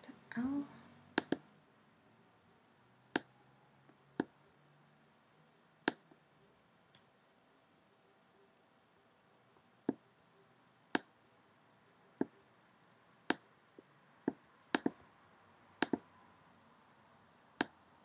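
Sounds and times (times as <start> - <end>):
computer mouse clicking: 1.2 - 1.5, 3.1 - 4.4, 5.8 - 6.2, 10.9 - 11.1, 13.2 - 15.0, 15.8 - 16.1, 17.6 - 17.8.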